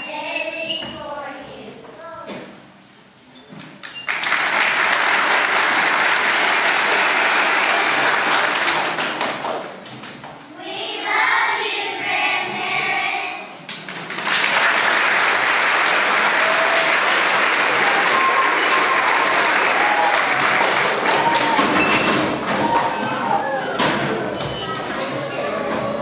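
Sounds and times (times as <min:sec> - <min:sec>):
audience clapping: 0:03.8 - 0:09.9, 0:13.7 - 0:23.0
group of voices: 0:16.2 - 0:26.0.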